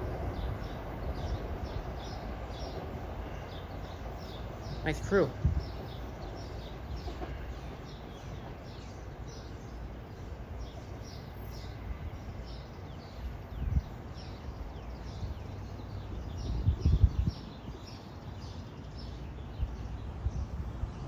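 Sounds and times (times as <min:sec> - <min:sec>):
songbirds chirping: 0:00.0 - 0:21.0.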